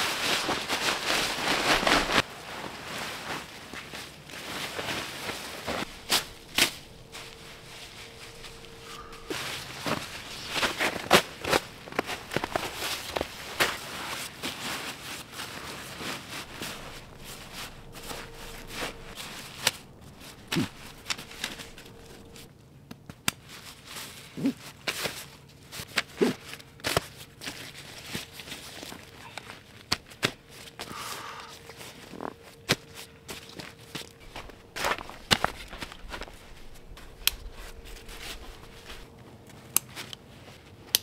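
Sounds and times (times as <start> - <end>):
nylon fabric rustling: 0.0 - 22.5, 31.5 - 40.8
snow crunching: 0.0 - 22.5, 30.5 - 39.2.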